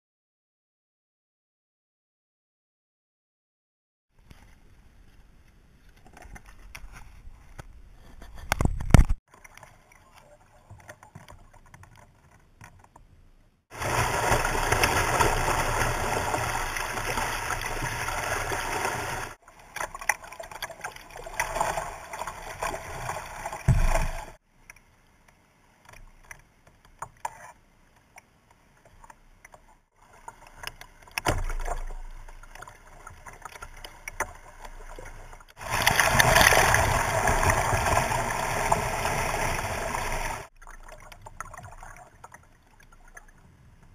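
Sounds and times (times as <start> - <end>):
water rushing past kayak hull: 13.7 - 24.4, 34.5 - 40.5
heavy knock on kayak: 23.7 - 24.2.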